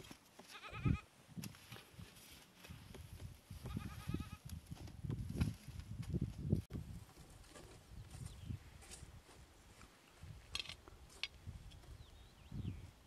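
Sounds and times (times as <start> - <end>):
sheep bleating: 0.5 - 1.0.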